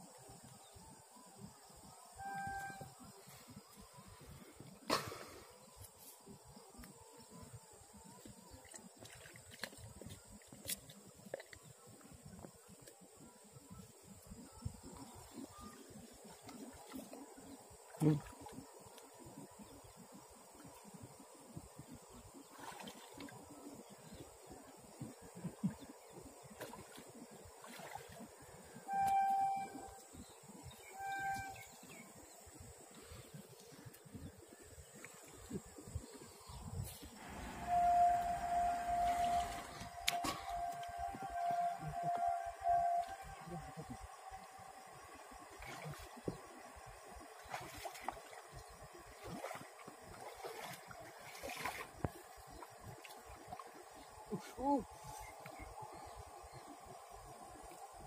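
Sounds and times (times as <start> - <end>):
feet wading through muddy water: 22.4 - 23.5, 26.5 - 28.4, 37.2 - 41.1, 45.5 - 55.4
vehicle horn honking: 28.9 - 30.0, 37.2 - 43.7.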